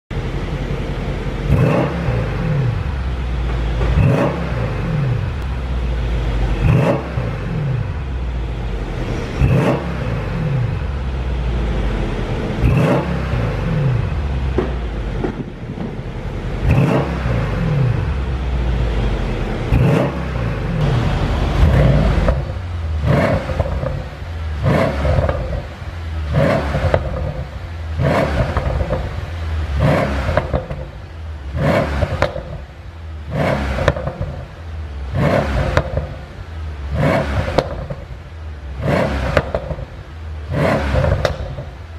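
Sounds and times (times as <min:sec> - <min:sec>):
car engine revving: 0:00.1 - 0:41.9
exhaust pops and crackles: 0:14.5 - 0:17.0, 0:32.0 - 0:32.6, 0:37.4 - 0:38.1, 0:39.2 - 0:40.0, 0:40.9 - 0:41.8.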